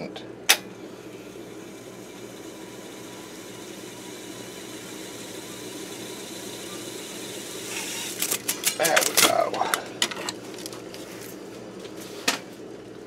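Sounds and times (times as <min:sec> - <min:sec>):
tape deck fast-winding whir: 0:00.5 - 0:09.6.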